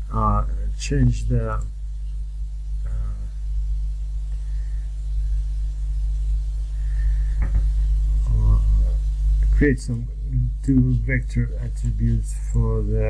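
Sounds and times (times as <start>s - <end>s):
steady low hum: 0.0s - 13.0s
man's voice: 0.1s - 1.6s, 8.3s - 8.9s, 9.6s - 13.0s.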